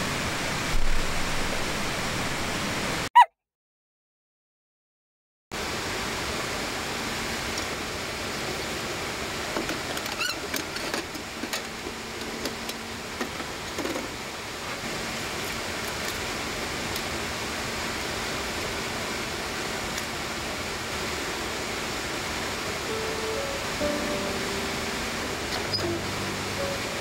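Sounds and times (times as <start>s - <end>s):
steady rushing noise: 17.2s - 27.0s.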